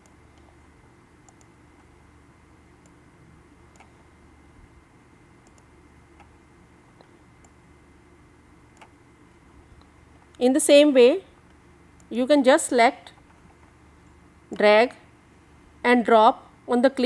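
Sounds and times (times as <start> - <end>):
low room hum: 0.0 - 17.0
faint computer mouse clicks: 1.3 - 1.9, 3.7 - 4.0, 5.4 - 6.3.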